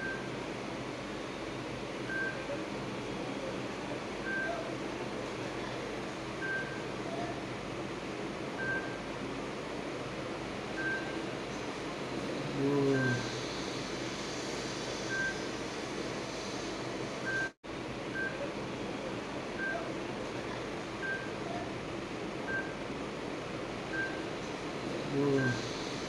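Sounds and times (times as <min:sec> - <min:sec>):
steady hiss: 0:11.5 - 0:17.3, 0:24.3 - 0:26.0.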